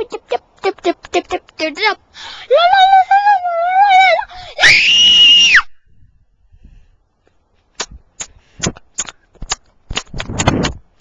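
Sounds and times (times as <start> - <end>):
girl screaming: 2.5 - 5.7
sharp clicks and knocks: 7.8 - 11.0.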